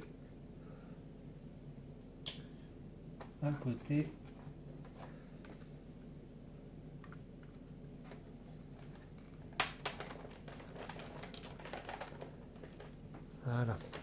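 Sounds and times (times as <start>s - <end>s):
steady low hum: 0.0s - 14.0s
sharp click of piece snapping: 2.0s - 2.5s.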